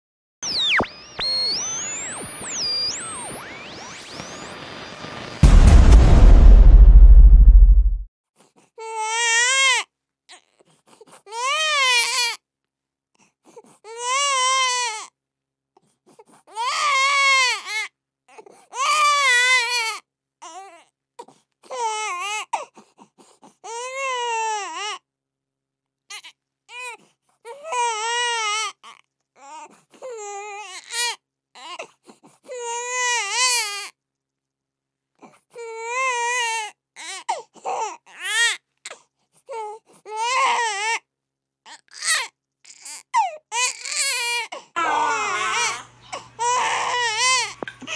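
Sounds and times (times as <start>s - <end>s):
baby crying: 13.9s - 15.1s, 39.5s - 41.0s, 41.7s - 47.9s.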